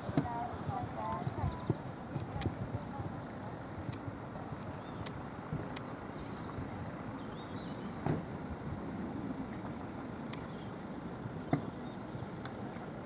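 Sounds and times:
outdoor background noise: 0.0 - 13.0
faint sharp clicks: 4.6 - 5.9, 10.3 - 10.5.

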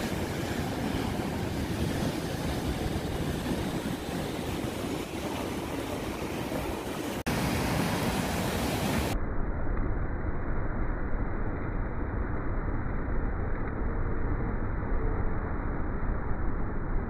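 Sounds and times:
whitewater rushing: 0.0 - 9.2.

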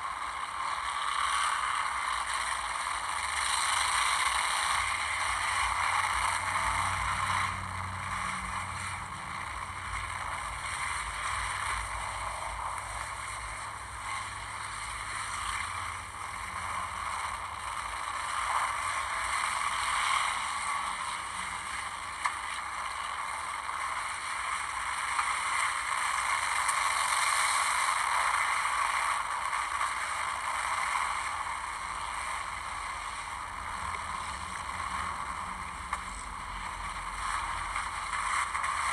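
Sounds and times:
race car engines droning: 0.3 - 23.0.

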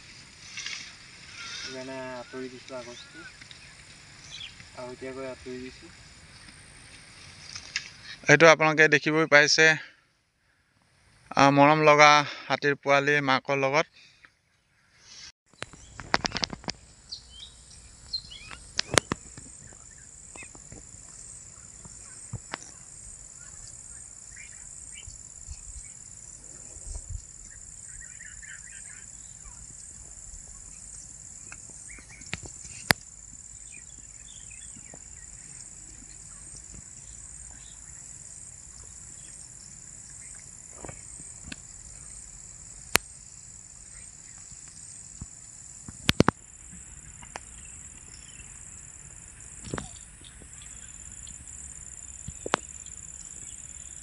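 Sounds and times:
bird chirps: 1.4 - 5.0, 17.0 - 32.9.

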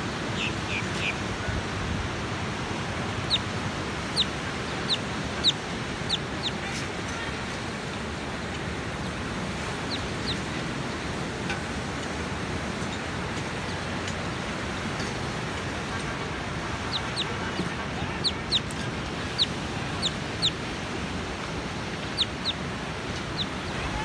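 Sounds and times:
bird chirping: 3.2 - 3.5, 4.1 - 6.6, 9.9 - 10.4, 18.1 - 20.6, 22.1 - 22.6, 23.2 - 23.8.

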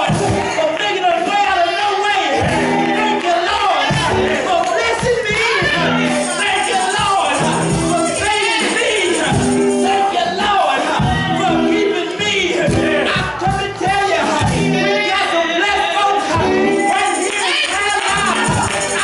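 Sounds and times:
gospel singing over instruments: 0.0 - 19.0
steady beat: 3.8 - 11.7, 16.3 - 19.0
tambourine: 4.7 - 10.2, 16.6 - 19.0.

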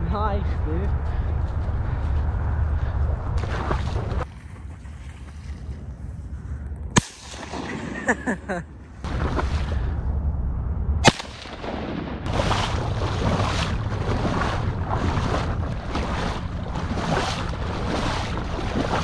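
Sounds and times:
wind rumble on microphone: 0.0 - 19.0
shotgun blasts: 7.0 - 8.0, 11.0 - 12.4.

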